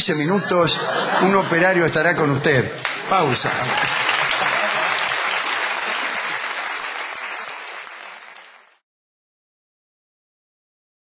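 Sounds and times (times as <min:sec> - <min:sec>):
audience applauding: 0:02.8 - 0:08.8.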